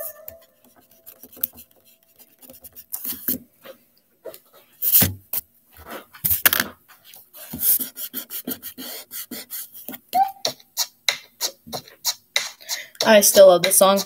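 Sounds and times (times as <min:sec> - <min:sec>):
pencil scratching on paper: 0:00.1 - 0:03.3, 0:07.4 - 0:09.7, 0:11.8 - 0:14.0.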